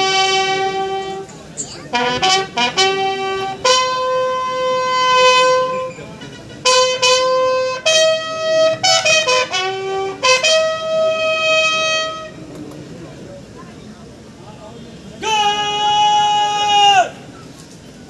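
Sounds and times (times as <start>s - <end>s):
brass instrument slow melody: 0.0s - 1.3s, 1.9s - 12.4s.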